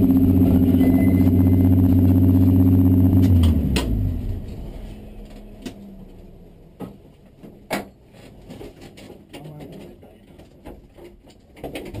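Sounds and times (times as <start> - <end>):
clicks and knocks in car cabin: 6.8 - 12.0.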